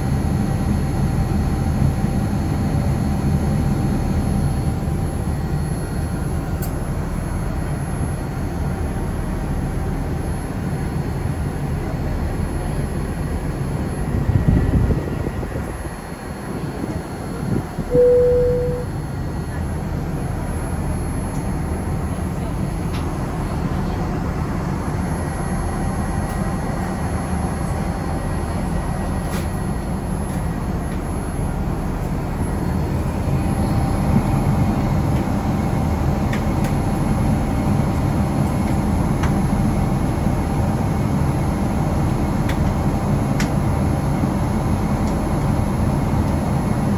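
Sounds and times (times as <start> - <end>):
airplane engines rumbling: 0.0 - 46.9.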